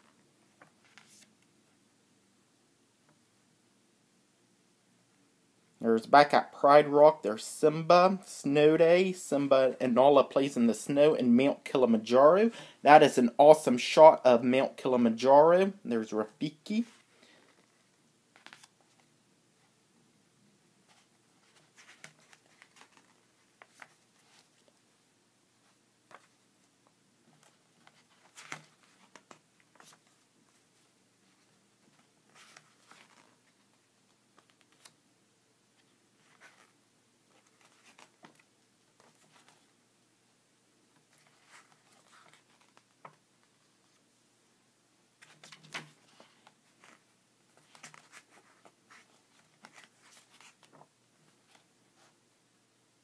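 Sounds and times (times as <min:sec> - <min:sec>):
paper pages turning: 0:00.6 - 0:01.4, 0:16.8 - 0:19.1, 0:20.9 - 0:24.8, 0:27.3 - 0:35.0, 0:35.8 - 0:39.7, 0:41.0 - 0:44.0, 0:45.2 - 0:52.1.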